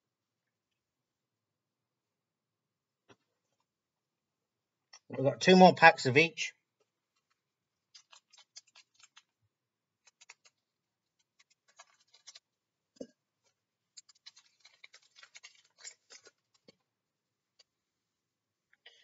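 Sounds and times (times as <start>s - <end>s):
foil wrapper crinkling: 7.9s - 9.4s, 10.0s - 10.6s, 11.2s - 12.5s, 14.0s - 16.7s.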